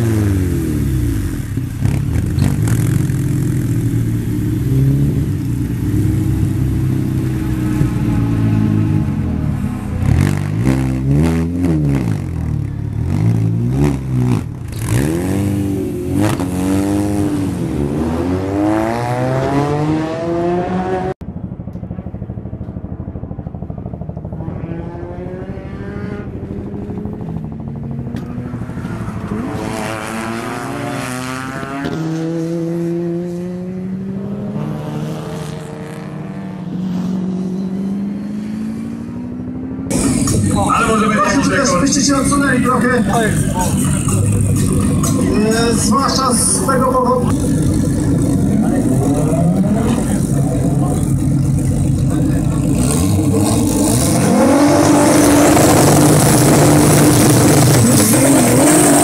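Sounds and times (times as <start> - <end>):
race car engine revving: 0.0 - 21.2, 24.4 - 59.0
race car driving at speed: 0.0 - 59.0.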